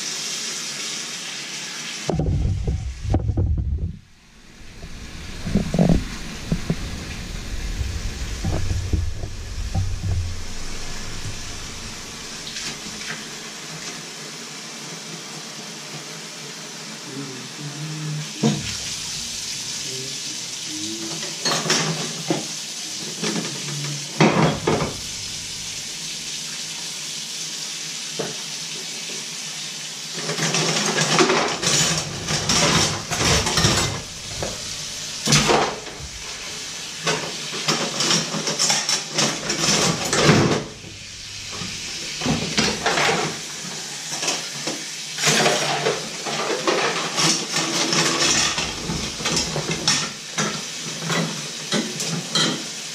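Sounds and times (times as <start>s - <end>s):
tap running: 2.1s - 13.1s, 31.6s - 37.3s
dishes clattering against steel: 21.4s - 22.2s, 45.2s - 52.7s.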